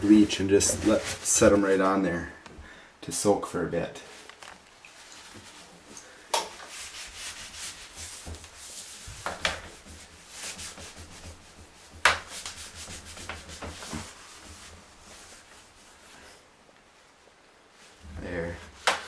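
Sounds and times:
cloth rubbing on glass: 0.0s - 1.9s, 5.0s - 5.9s, 6.6s - 16.4s.

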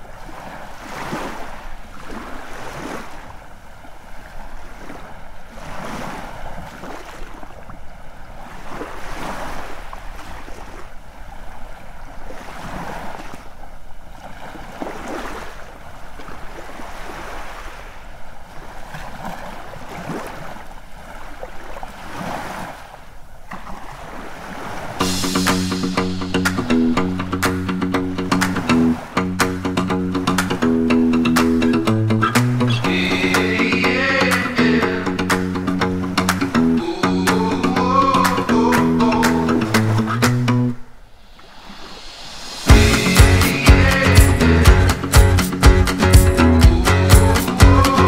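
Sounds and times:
sea waves washing onto beach: 0.0s - 29.6s, 32.4s - 40.4s, 41.0s - 48.0s
guitar music: 25.0s - 40.8s, 42.7s - 48.0s.

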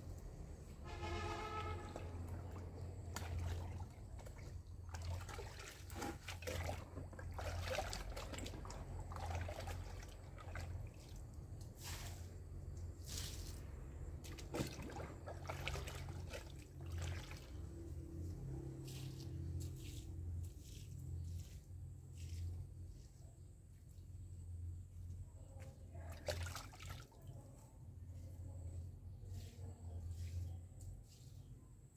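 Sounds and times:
liquid trickling and splashing: 1.3s - 12.2s, 13.0s - 18.0s, 25.6s - 27.6s.

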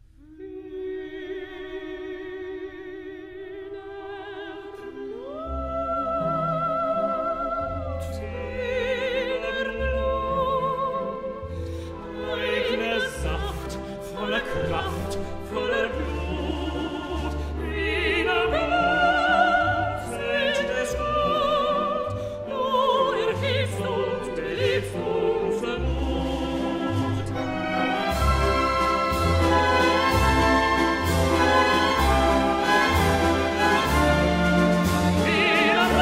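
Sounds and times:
operatic singing: 0.2s - 36.0s
small orchestra strings: 0.4s - 36.0s.

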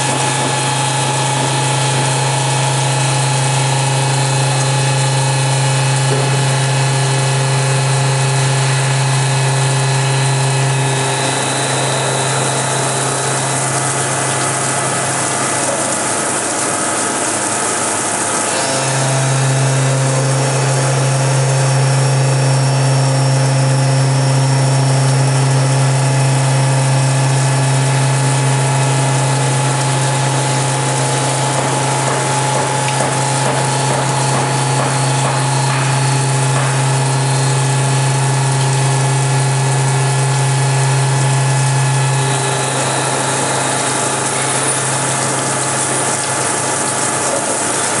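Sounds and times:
coolant spray hissing: 0.0s - 48.0s
machine low hum: 0.0s - 48.0s.

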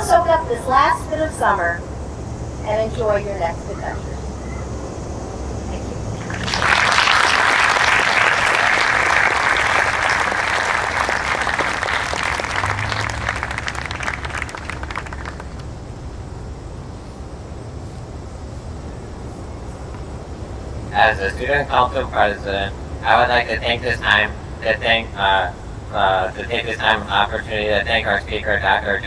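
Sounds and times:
audience applauding: 6.2s - 15.7s.

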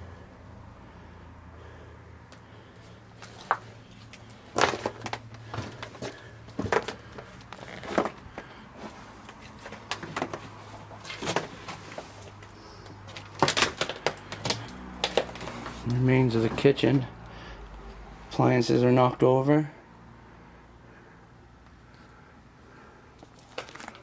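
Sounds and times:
footsteps crunching over debris: 3.2s - 17.0s, 23.2s - 24.0s.

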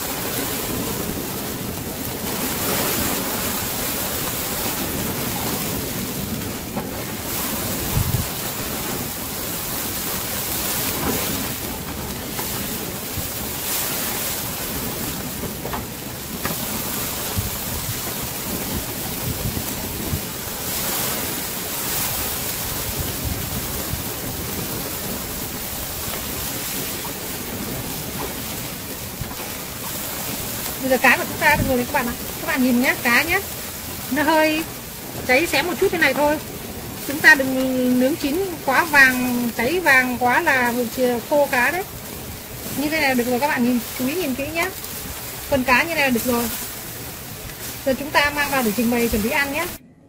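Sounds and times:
wind on microphone: 0.0s - 50.0s
fish sizzling on grill: 29.8s - 49.3s.

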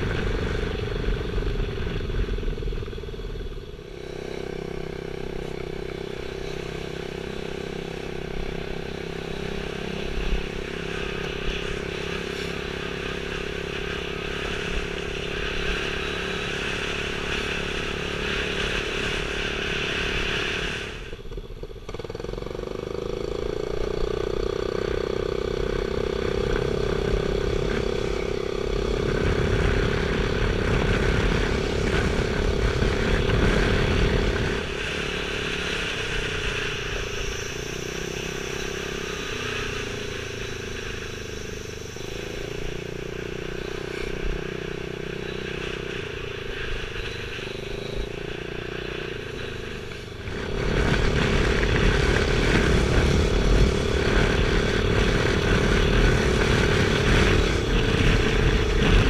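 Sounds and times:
road and wind noise: 0.0s - 59.0s
scooter engine running: 0.0s - 59.0s
wind rumble on microphone: 0.0s - 59.0s.

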